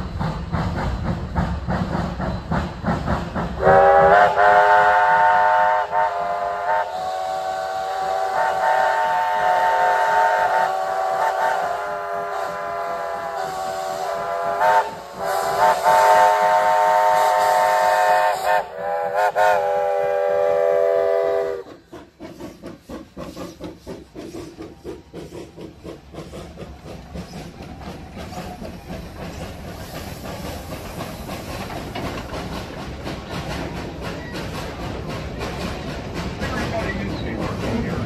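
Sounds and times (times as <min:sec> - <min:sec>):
steam hissing: 0:00.0 - 0:38.0
steam locomotive exhaust chuffs: 0:00.0 - 0:38.0
steam locomotive whistle: 0:03.6 - 0:21.8.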